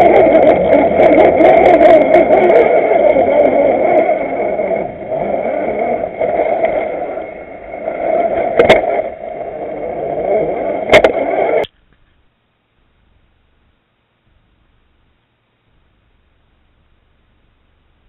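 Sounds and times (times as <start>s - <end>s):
electric motor and gears whining: 0.0s - 11.7s.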